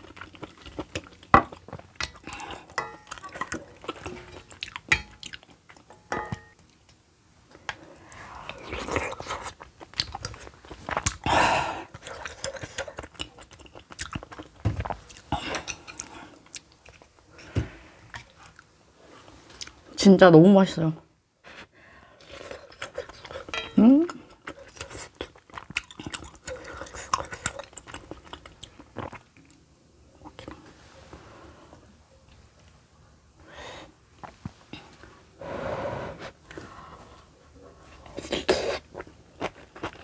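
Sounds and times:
chewing and mouth sounds: 0.0s - 5.9s, 8.4s - 17.2s, 22.2s - 30.6s, 38.0s - 40.0s.

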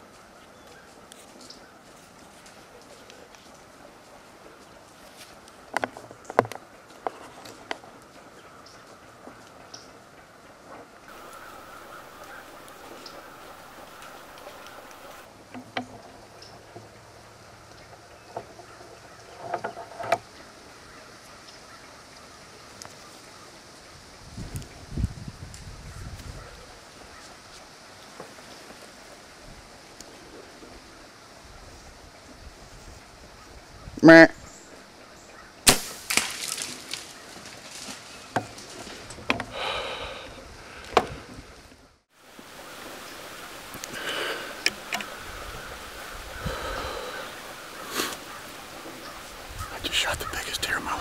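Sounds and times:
dry leaves and twigs crackling: 0.0s - 23.9s, 34.7s - 51.0s
faint hiss: 10.6s - 18.3s, 19.7s - 51.0s
rustling: 35.7s - 39.5s, 40.7s - 51.0s.

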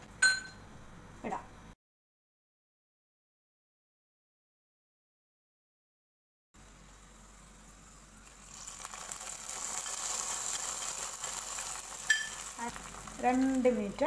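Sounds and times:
hot oil sizzling: 6.6s - 14.0s.

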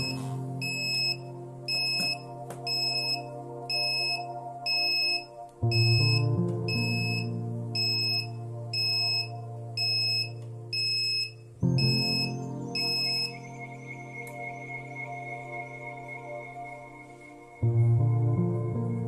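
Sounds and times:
alarm buzzer beeping: 0.0s - 13.3s
background music: 0.0s - 19.0s.

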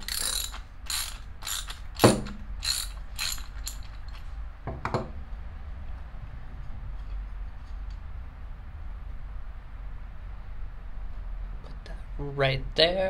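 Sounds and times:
wrench ratcheting clicks: 0.0s - 4.2s.

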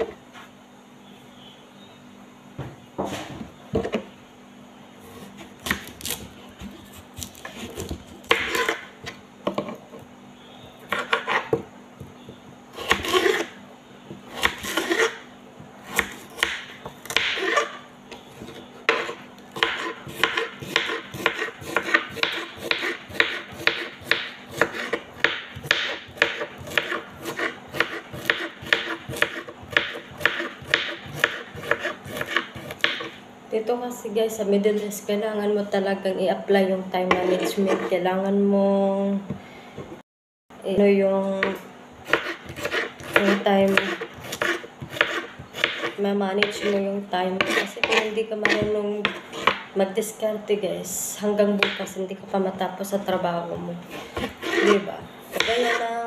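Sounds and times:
knife chopping on wooden board: 5.6s - 8.9s, 10.9s - 11.6s, 12.8s - 13.5s, 15.8s - 17.8s, 18.4s - 33.2s, 37.1s - 37.9s, 41.4s - 46.8s, 47.4s - 49.7s, 51.6s - 51.9s, 53.9s - 55.8s.

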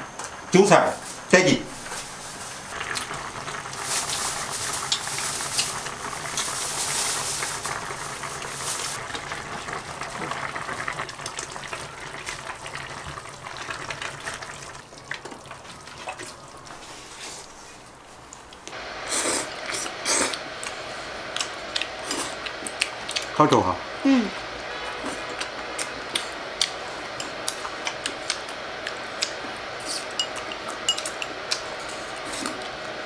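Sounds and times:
soup bubbling in a pot: 2.4s - 23.4s.

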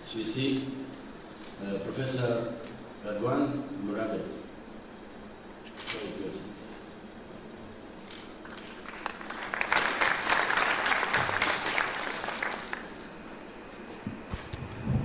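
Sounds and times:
audience applauding: 8.4s - 13.0s.

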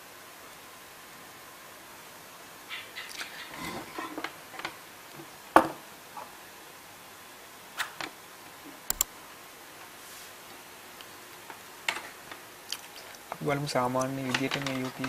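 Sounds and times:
quick double click: 8.9s - 9.1s
sharp loud click: 8.9s - 9.1s
cables and plug rattling: 14.0s - 15.0s.

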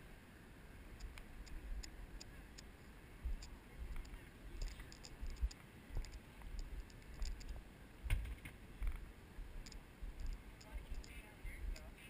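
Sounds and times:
light clicks: 1.0s - 7.6s, 9.6s - 11.9s
wind rumbling on microphone: 1.0s - 12.0s.

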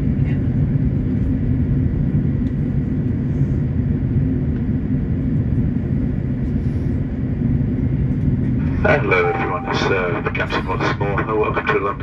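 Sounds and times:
airliner cabin rumble: 0.0s - 12.0s
faint high whine: 8.6s - 11.0s.

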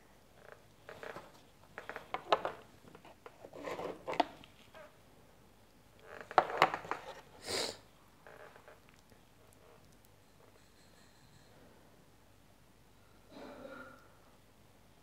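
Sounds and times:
brief hiss: 7.4s - 7.8s.

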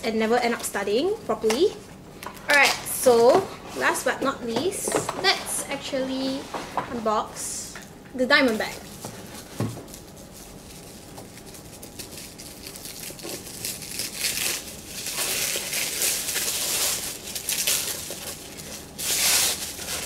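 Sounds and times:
plastic bag crinkling: 8.5s - 20.0s.

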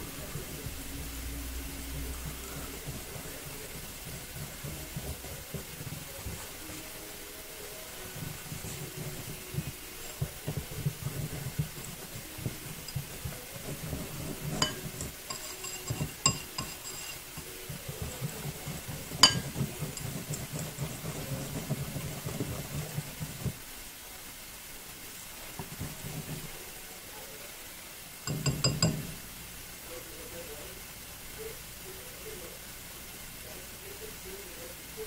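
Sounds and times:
whisk beating batter: 0.0s - 23.7s, 25.3s - 27.4s, 28.2s - 29.2s
whisk clinking against bowl: 2.0s - 6.9s, 7.6s - 23.5s, 28.3s - 29.2s.

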